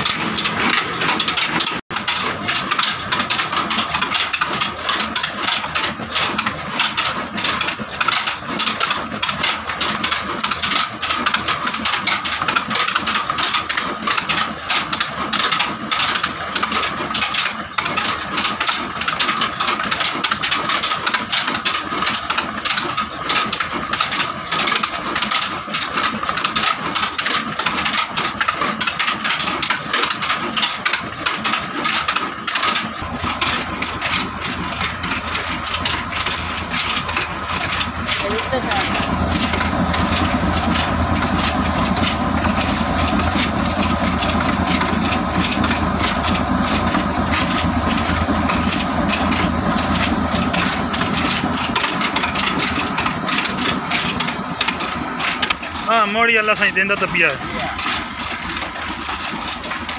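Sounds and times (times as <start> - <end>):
diesel engine running: 0.0 - 13.8, 21.8 - 59.9
pulleys and belts clattering: 0.0 - 59.9
steady whine: 33.0 - 59.8.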